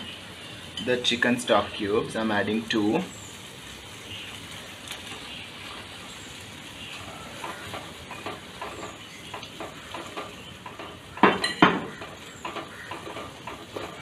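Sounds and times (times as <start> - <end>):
masala sizzling in a pot: 0.0 - 14.0
wooden spatula scraping a pot: 6.9 - 14.0.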